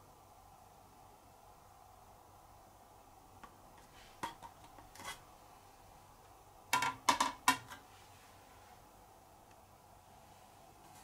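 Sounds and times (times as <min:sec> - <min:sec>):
plastic fan clicks and clacks: 0:06.7 - 0:07.8.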